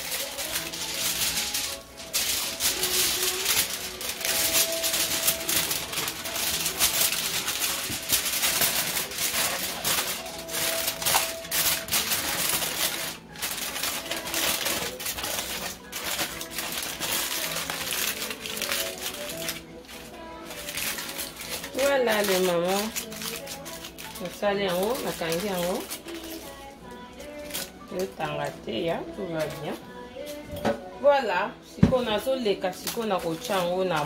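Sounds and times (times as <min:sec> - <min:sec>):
aluminium foil crinkling: 0:00.0 - 0:30.7, 0:32.0 - 0:34.0.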